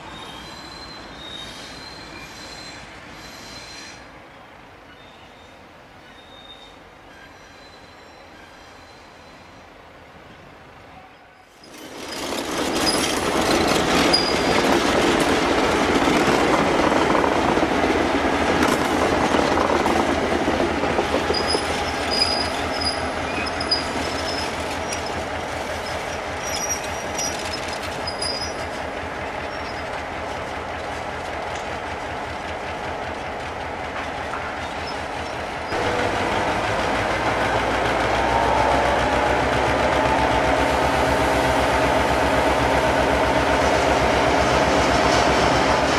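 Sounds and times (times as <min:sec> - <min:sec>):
diesel locomotive engine: 0:00.0 - 0:45.9
train wheel and wagon clatter: 0:11.5 - 0:45.9
high-pitched wheel squeals: 0:21.3 - 0:25.2.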